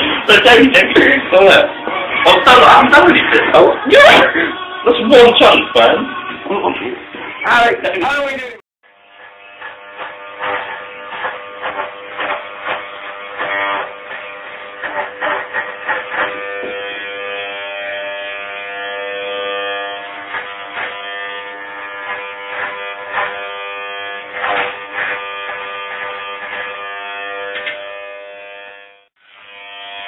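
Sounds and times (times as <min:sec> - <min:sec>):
electric hair clippers buzzing: 0:08.0 - 0:30.0.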